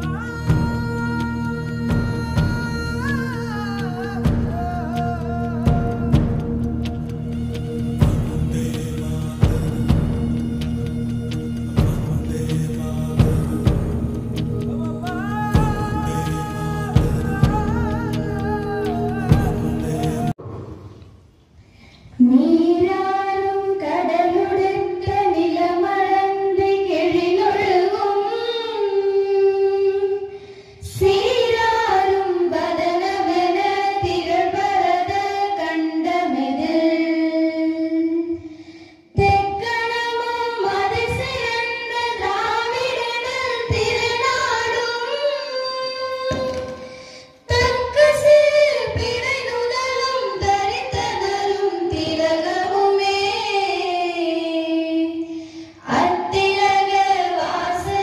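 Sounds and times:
young women singing in unison: 0:22.2 - 0:38.5, 0:39.1 - 0:58.0.

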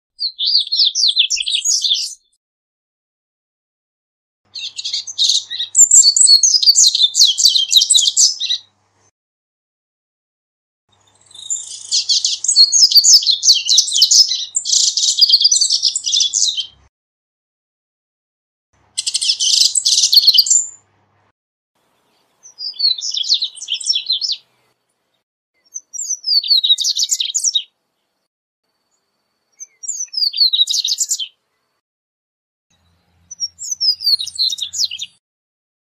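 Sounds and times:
bird twittering song: 0:00.2 - 0:02.4, 0:04.5 - 0:08.7, 0:10.9 - 0:16.9, 0:18.9 - 0:20.8, 0:21.8 - 0:31.8, 0:32.7 - 0:35.2.

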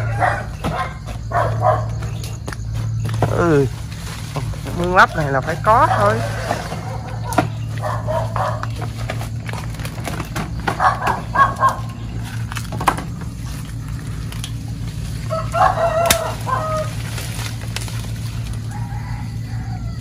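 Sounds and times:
rooster crowing: 0:00.0 - 0:02.0, 0:05.0 - 0:08.7, 0:15.0 - 0:20.0
steady low hum: 0:00.0 - 0:20.0.

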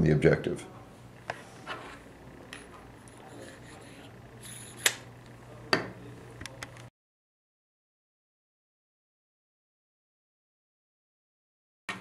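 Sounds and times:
faint steady hum: 0:00.0 - 0:06.9.

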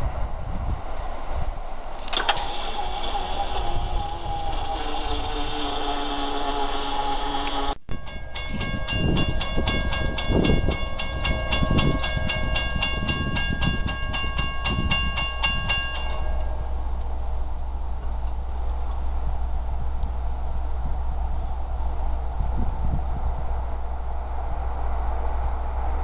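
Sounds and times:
train horn: 0:04.0 - 0:16.7
crossing bell ringing: 0:07.9 - 0:17.4.

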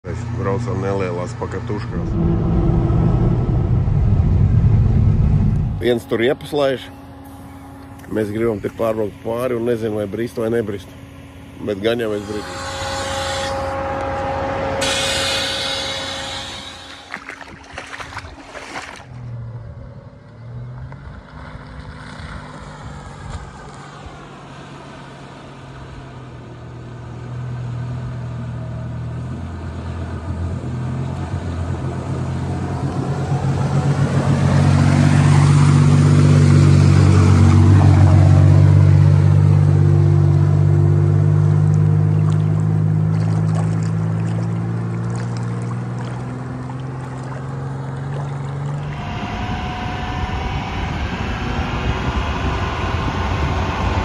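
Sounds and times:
truck engine at low revs: 0:00.0 - 0:17.2, 0:17.8 - 0:54.0
water washing and splashing: 0:16.8 - 0:19.4, 0:41.7 - 0:48.8.

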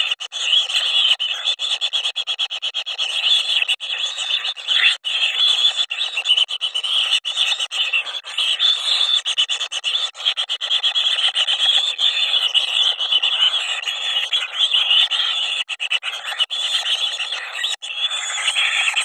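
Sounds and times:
nestlings begging chatter: 0:10.7 - 0:19.0.

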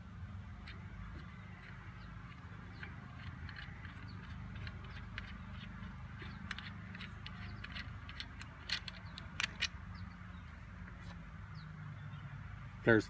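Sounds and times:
steady low hum: 0:00.0 - 0:13.0
sharp metal clicks: 0:00.5 - 0:10.2
small ticks of unscrewing bolt: 0:01.6 - 0:09.8.

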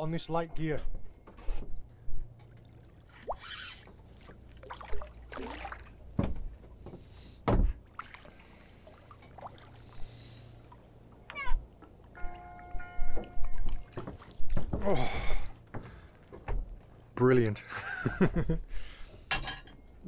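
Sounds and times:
water splashing around a boat: 0:02.5 - 0:15.6.

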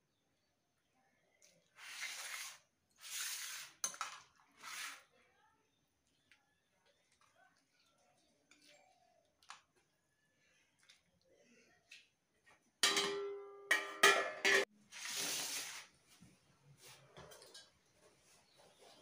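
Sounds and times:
spoon clanging on steel plates: 0:12.8 - 0:14.7.

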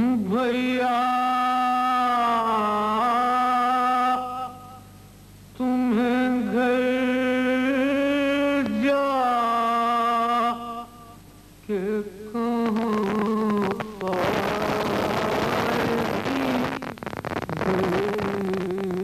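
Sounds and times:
man chanting a lament: 0:00.0 - 0:04.8
tape hiss and crackle: 0:00.0 - 0:19.0.

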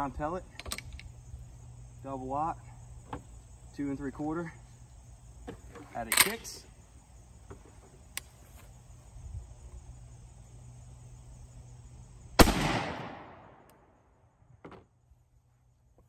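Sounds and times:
shotgun shot echoing: 0:12.4 - 0:13.7.

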